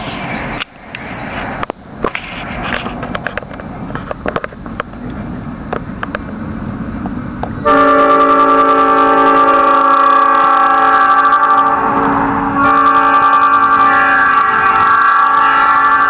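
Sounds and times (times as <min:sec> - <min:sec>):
rumbling with clicks: 0:00.0 - 0:06.4
train horn chord: 0:07.6 - 0:16.0.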